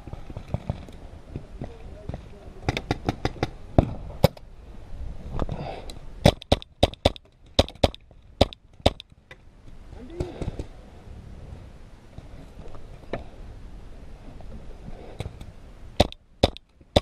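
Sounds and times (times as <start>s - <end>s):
paintball markers firing: 6.2s - 9.1s, 16.0s - 17.0s.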